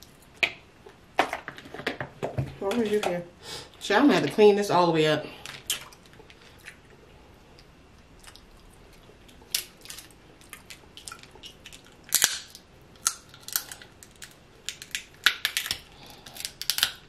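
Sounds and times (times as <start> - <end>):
crab shells cracking: 7.6 - 17.0.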